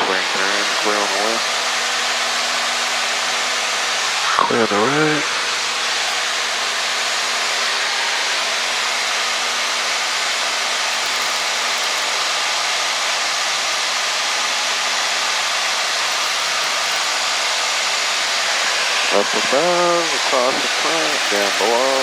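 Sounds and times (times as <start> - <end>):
aircraft engine and propeller: 0.0 - 22.0
faint steady hum: 15.6 - 22.0.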